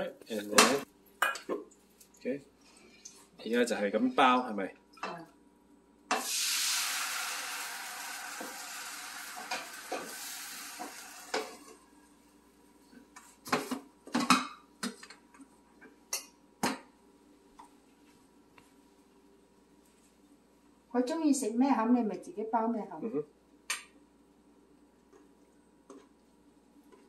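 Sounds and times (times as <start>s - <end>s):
oil sizzling in pan: 6.1s - 12.4s.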